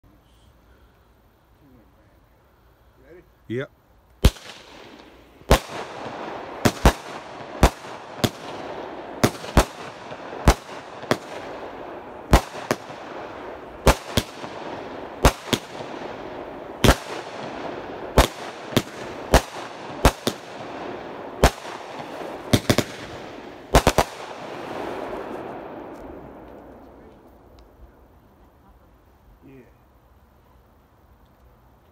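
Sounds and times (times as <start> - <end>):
firework hiss: 0.0 - 31.8
firework bangs: 4.2 - 28.7.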